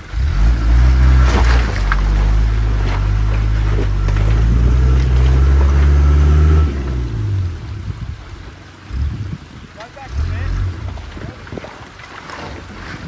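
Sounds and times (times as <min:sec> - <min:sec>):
engine pulling hard under load: 0:00.0 - 0:13.0
rocks knocking under wheels: 0:00.6 - 0:07.1.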